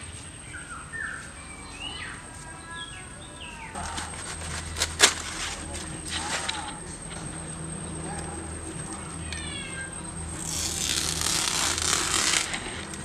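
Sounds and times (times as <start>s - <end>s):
birds chirping: 0.0s - 13.0s
leaves snapping: 3.8s - 6.8s, 10.4s - 13.0s
banana leaves rustling: 3.8s - 13.0s.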